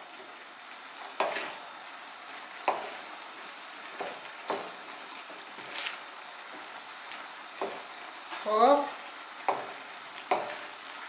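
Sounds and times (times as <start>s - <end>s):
food sizzling in frying pan: 0.0s - 11.0s
wooden spoon scraping pan: 1.2s - 1.6s, 2.7s - 3.1s, 3.9s - 6.7s.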